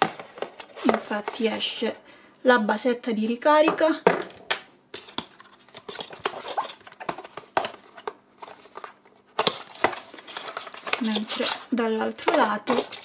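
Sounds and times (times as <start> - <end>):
hands handling cardboard packaging: 5.0 - 13.0.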